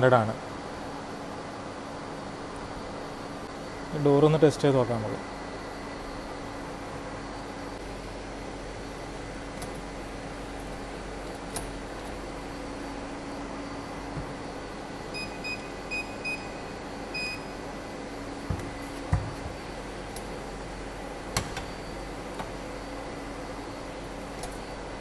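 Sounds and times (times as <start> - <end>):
background hum: 0.0 - 25.0
keypad beeping: 15.2 - 17.6.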